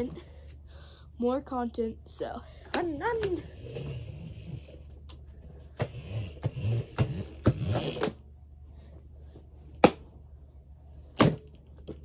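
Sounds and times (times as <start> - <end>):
small motor whirring: 5.8 - 8.0.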